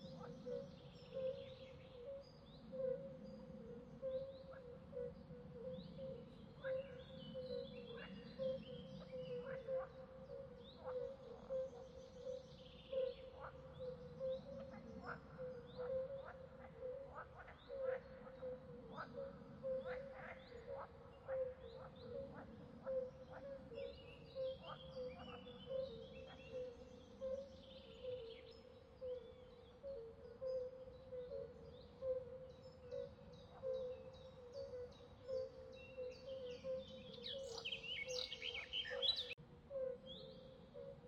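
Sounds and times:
birds chirping: 37.0 - 39.4.

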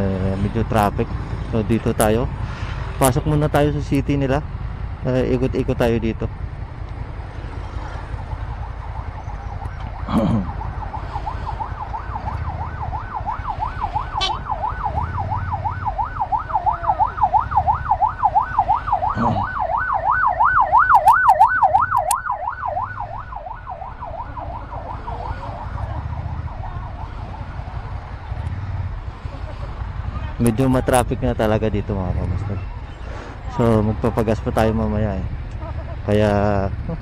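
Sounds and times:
motorcycle engine at low speed: 0.0 - 37.0
siren yelping: 8.2 - 28.4.

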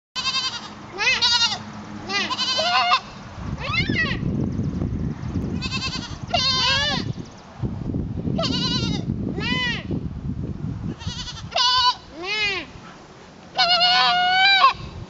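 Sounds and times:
goat kid bleating: 0.2 - 4.3, 5.6 - 7.1, 8.4 - 9.9, 10.9 - 12.8, 13.5 - 14.9.

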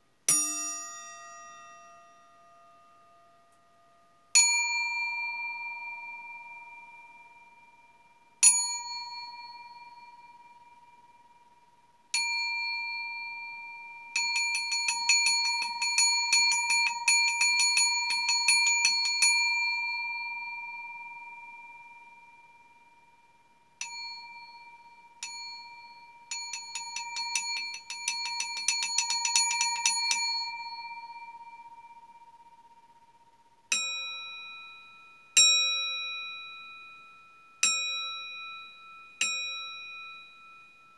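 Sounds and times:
metal bowl ringing: 12.2 - 22.1, 23.8 - 34.9.

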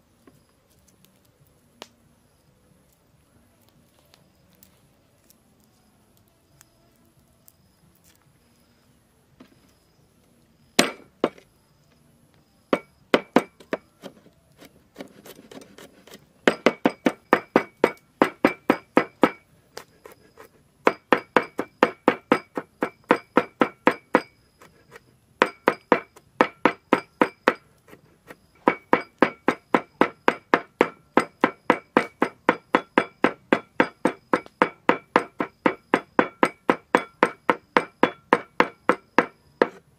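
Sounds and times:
cleaver chopping on wooden board: 10.8 - 11.4, 12.8 - 14.2, 16.5 - 19.4, 20.8 - 24.3, 25.4 - 27.6, 28.6 - 39.8.

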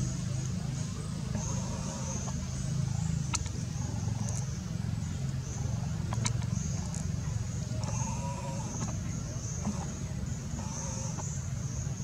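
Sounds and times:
faint ticks: 6.1 - 7.1.

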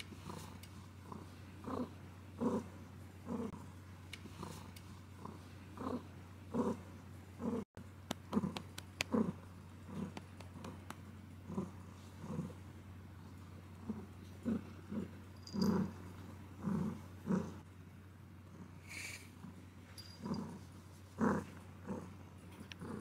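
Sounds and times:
cat purring: 0.0 - 7.6, 8.2 - 17.6.

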